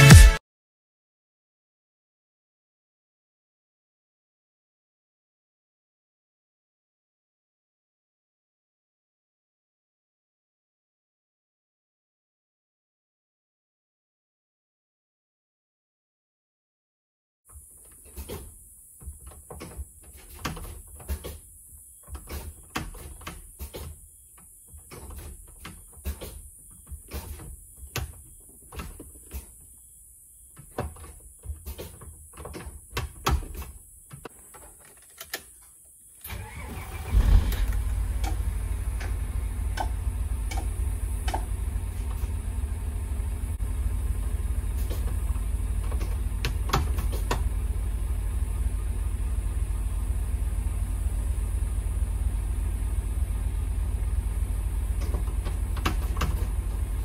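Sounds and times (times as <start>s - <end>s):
diesel engine cranking and idling: 36.2s - 57.0s
clicks and knocks in cab: 45.8s - 47.5s, 54.9s - 57.0s.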